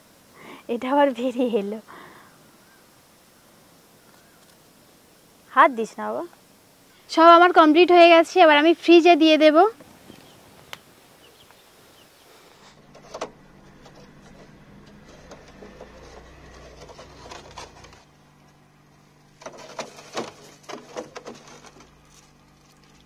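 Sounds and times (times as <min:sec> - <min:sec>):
refrigerator humming: 0:11.3 - 0:23.0.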